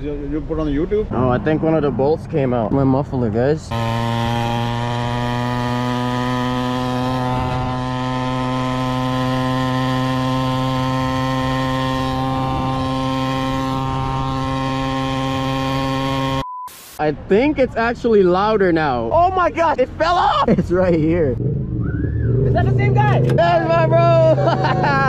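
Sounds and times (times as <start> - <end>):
small engine running: 3.7 - 16.4.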